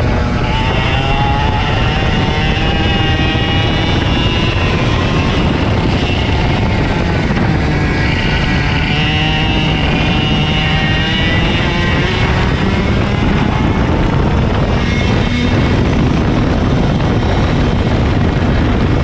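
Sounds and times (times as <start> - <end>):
heavy rumble and rushing: 0.0 - 19.0
kart engine racing: 0.0 - 19.0.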